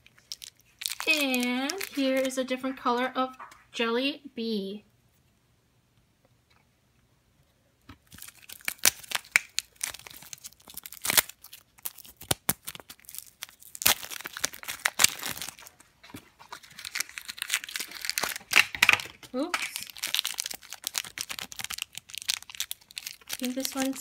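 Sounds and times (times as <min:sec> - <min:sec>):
cellophane wrap crackling: 0:00.0 - 0:02.4, 0:08.0 - 0:24.0.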